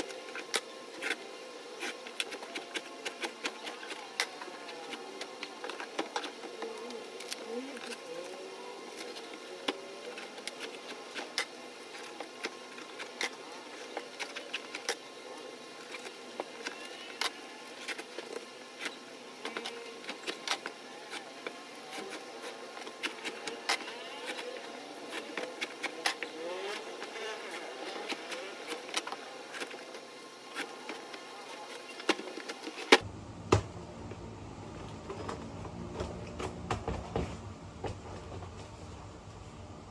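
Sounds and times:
faint background hum: 0.0s - 39.9s.

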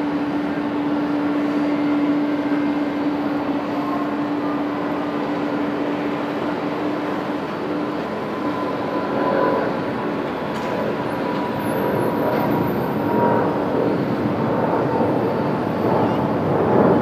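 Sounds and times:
faint thin whine: 0.0s - 17.0s
jet engine roar: 0.0s - 17.0s.

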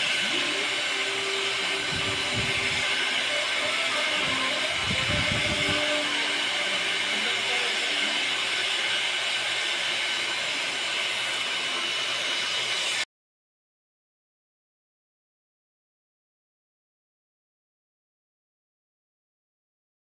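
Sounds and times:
hair dryer blowing: 0.0s - 13.1s.

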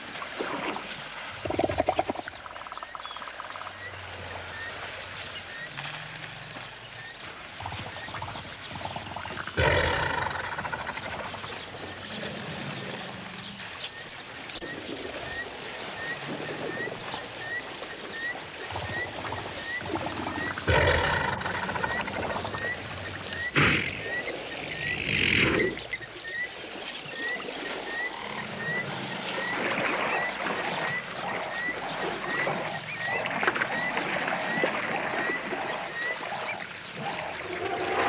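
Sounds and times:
elephants rumbling calls: 7.6s - 13.8s, 18.7s - 26.0s
water sloshing and splashing: 25.5s - 38.0s.

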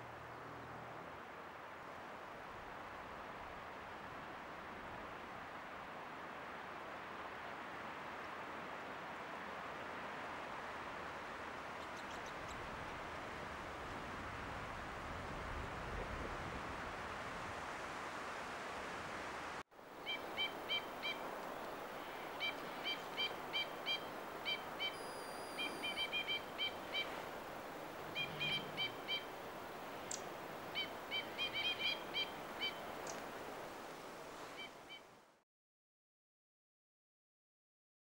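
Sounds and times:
background hiss: 17.0s - 35.4s
crossbills calling: 20.0s - 33.2s.

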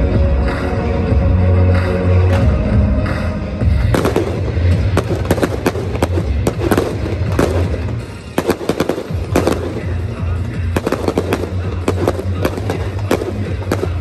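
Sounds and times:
background music with bass: 0.0s - 14.0s
fireworks bangs and crackles: 3.6s - 14.0s.

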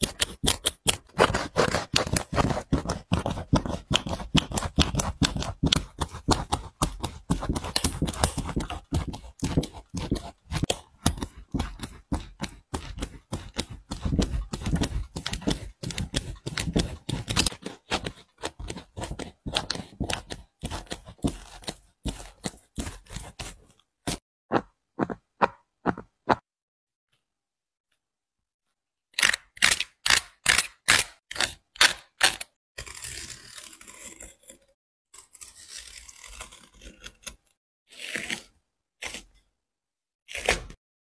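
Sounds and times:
utility knife cutting strokes: 0.0s - 24.2s.

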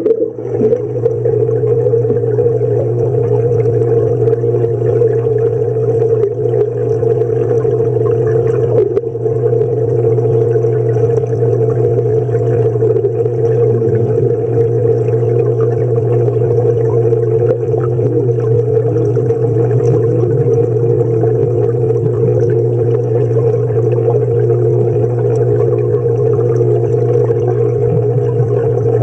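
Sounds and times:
wavering warbling tones: 0.0s - 5.8s, 12.7s - 29.0s
underwater hum: 0.0s - 29.0s
water movement: 0.0s - 29.0s.

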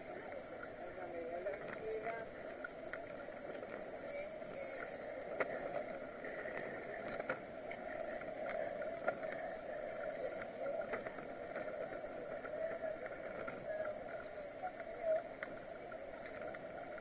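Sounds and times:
bicycle riding hum: 0.0s - 17.0s.

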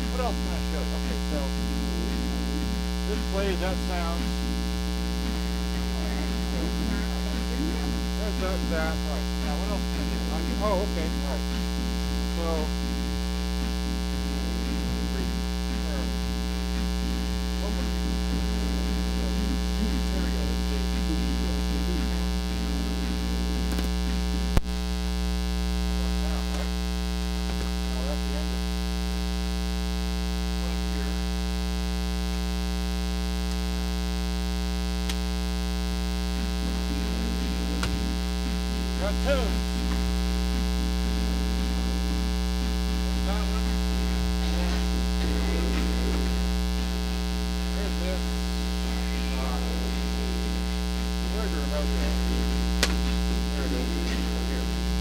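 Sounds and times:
mains hum: 0.0s - 55.0s.

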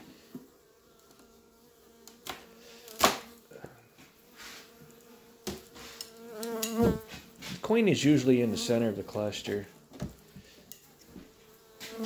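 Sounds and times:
bees humming: 0.1s - 12.0s
knocks of wooden hive parts: 2.1s - 3.4s.

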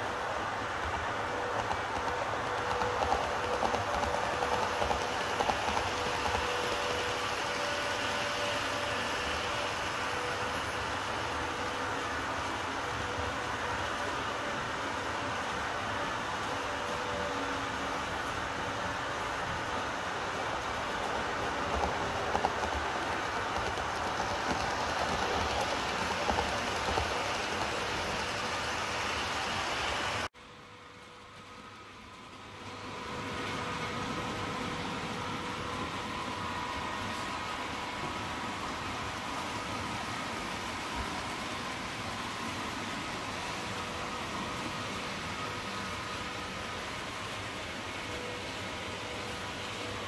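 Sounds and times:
model train wheels clicking: 0.0s - 30.3s.

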